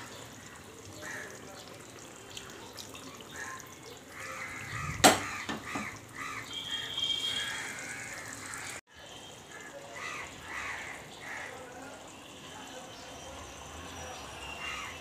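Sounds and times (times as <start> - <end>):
curry bubbling in a pot: 0.0 - 14.9
knocks: 5.0 - 5.9.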